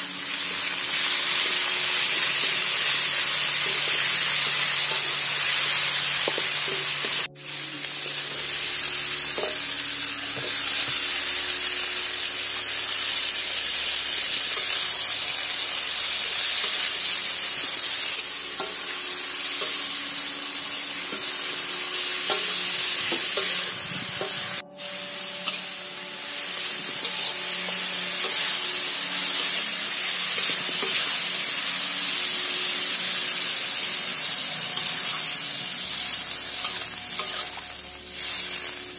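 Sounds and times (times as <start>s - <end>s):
food sizzling in a wok: 0.0s - 38.9s
metal spatula scraping wok: 21.0s - 31.7s, 34.1s - 38.8s.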